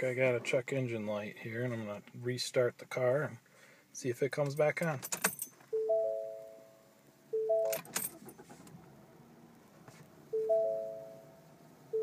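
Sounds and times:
car dashboard warning chime: 5.8s - 7.9s, 10.3s - 12.0s.

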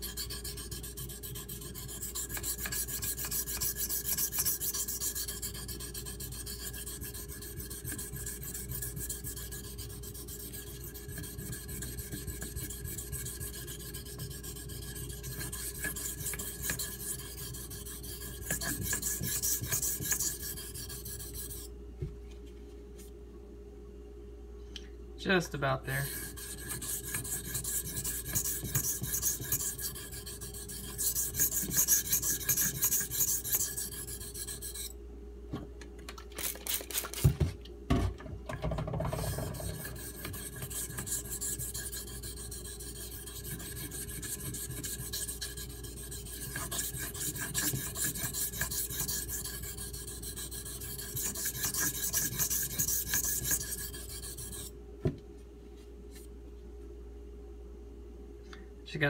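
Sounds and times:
knife scraping on whetstone: 0.0s - 21.7s, 26.0s - 35.0s, 39.0s - 54.7s.

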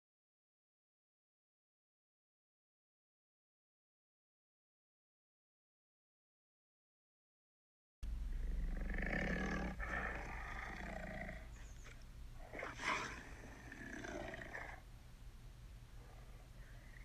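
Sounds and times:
tiger calls: 8.3s - 14.8s.

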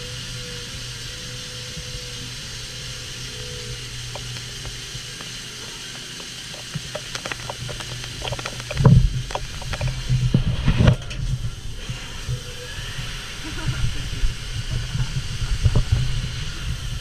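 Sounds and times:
coolant spraying hiss: 0.0s - 17.0s
lathe machine hum: 0.0s - 17.0s
coolant spattering on window: 3.8s - 11.1s.

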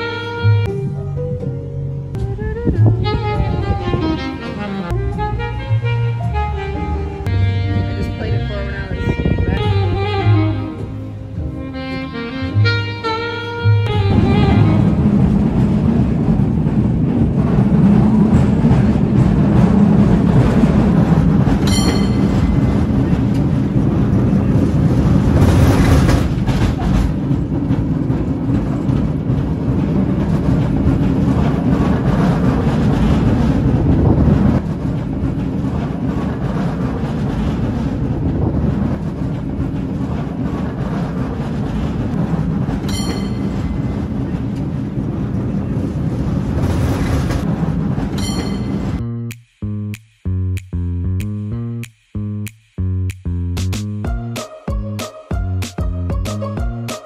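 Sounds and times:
cable car rumbling on rails: 0.0s - 49.1s
metallic ringing strikes: 21.6s - 22.6s, 48.2s - 48.9s.

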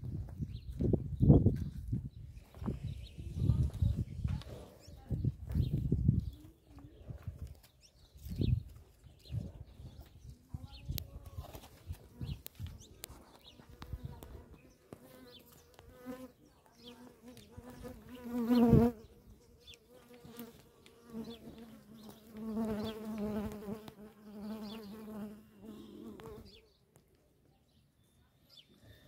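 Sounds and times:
flies buzzing: 14.9s - 19.2s, 19.9s - 26.6s.

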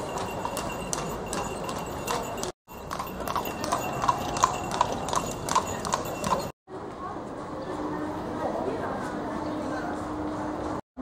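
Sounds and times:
horse hooves on stone paving: 0.0s - 6.5s.

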